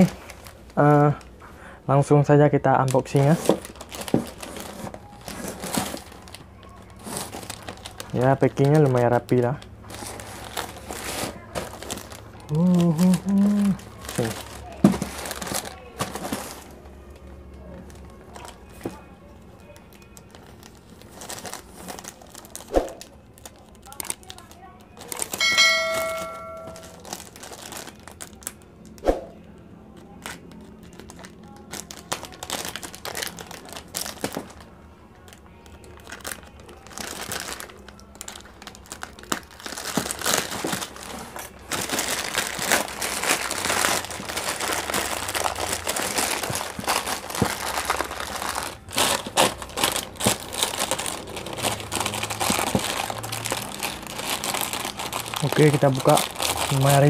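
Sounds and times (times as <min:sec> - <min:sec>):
plastic mailer bag crinkling: 0:00.0 - 0:01.3, 0:02.6 - 0:17.0, 0:17.8 - 0:19.0, 0:19.6 - 0:29.0, 0:30.1 - 0:57.0.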